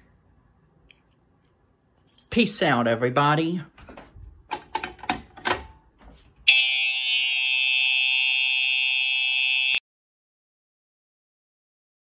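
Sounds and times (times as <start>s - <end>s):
alarm horn tone: 6.5s - 9.8s.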